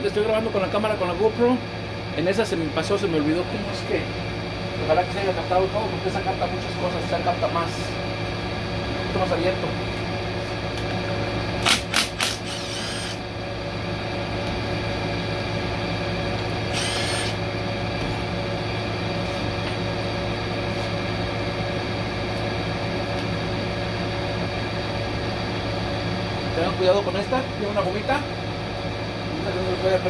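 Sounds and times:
steady hum: 0:00.0 - 0:30.0
power ratchet bursts: 0:11.6 - 0:13.2, 0:16.6 - 0:17.4.

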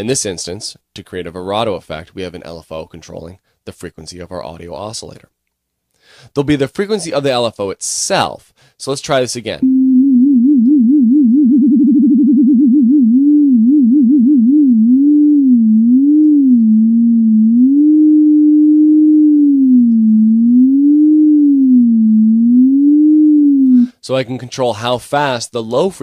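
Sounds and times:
sine-wave tone with vibrato: 0:09.6 - 0:23.9.

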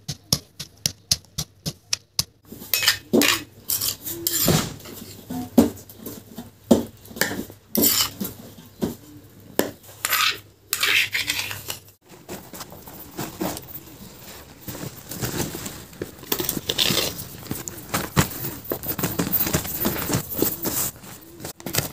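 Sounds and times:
metal spoon scraping stone mortar: 0:02.7 - 0:04.6, 0:07.8 - 0:08.2, 0:10.0 - 0:11.9.

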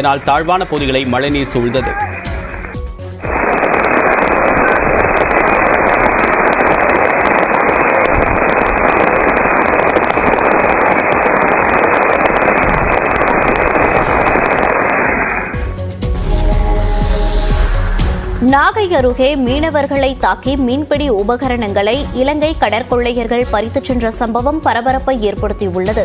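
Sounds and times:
heavy rain in gusting wind: 0:03.0 - 0:15.7.

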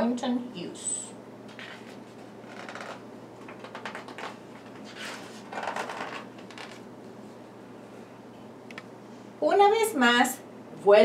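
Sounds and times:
book pages rustling: 0:01.5 - 0:06.8.

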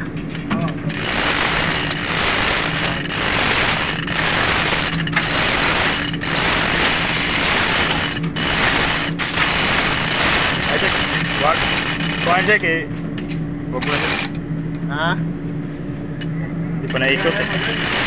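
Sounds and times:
chain hoist rattling and clicking: 0:00.9 - 0:12.6, 0:16.9 - 0:18.0.

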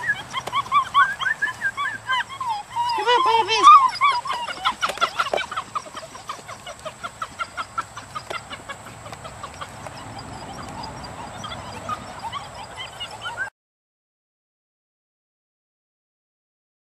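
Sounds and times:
high-pitched chirping calls: 0:00.0 - 0:13.5.

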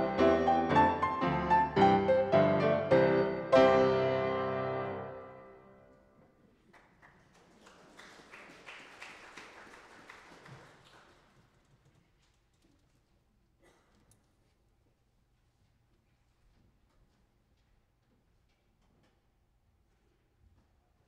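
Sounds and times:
piano music: 0:00.0 - 0:05.9.

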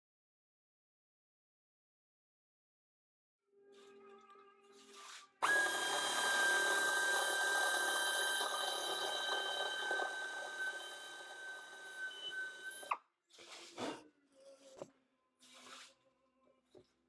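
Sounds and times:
pneumatic air drill whining: 0:05.4 - 0:13.0.

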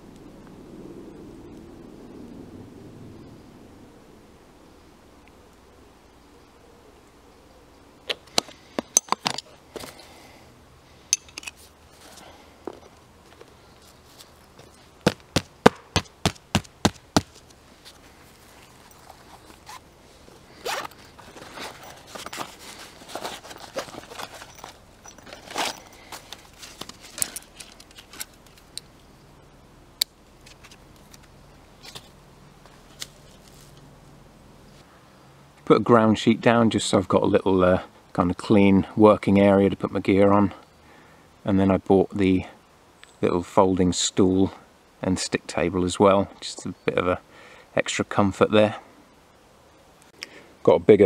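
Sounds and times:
fabric rustling: 0:17.3 - 0:28.4.

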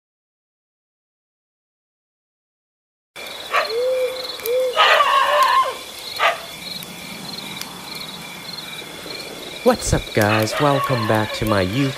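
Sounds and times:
insects chirping: 0:03.2 - 0:11.9
sharp animal calls: 0:03.4 - 0:11.9.

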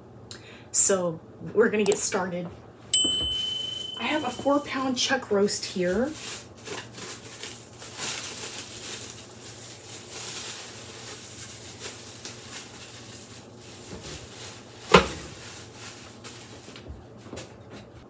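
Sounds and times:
plastic wrap crinkling: 0:05.6 - 0:16.8.

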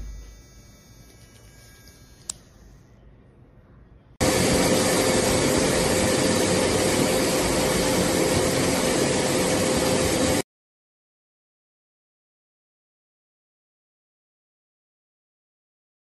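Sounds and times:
nail grinder motor whirring: 0:00.0 - 0:02.9.

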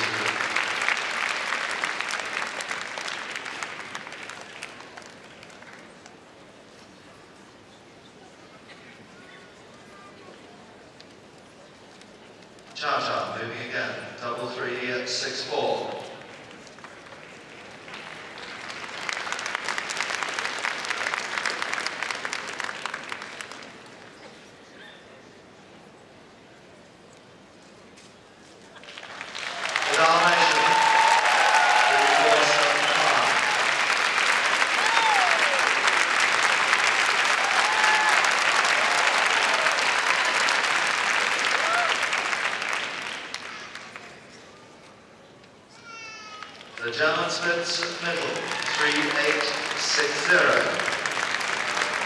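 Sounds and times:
audience applause: 0:00.0 - 0:06.2, 0:16.2 - 0:24.2, 0:28.8 - 0:44.2, 0:46.3 - 0:52.0.

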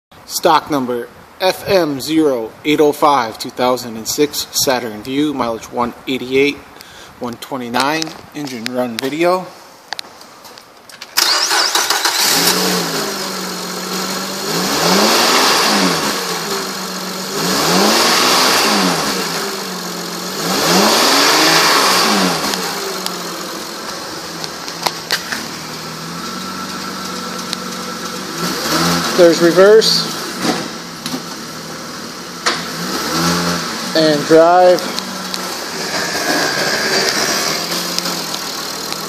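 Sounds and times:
car engine starting and revving: 0:11.1 - 0:39.0.

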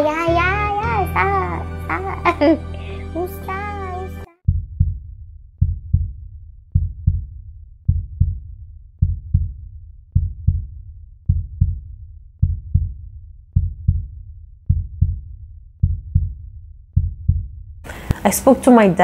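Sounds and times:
heartbeat thumps: 0:04.5 - 0:18.2.

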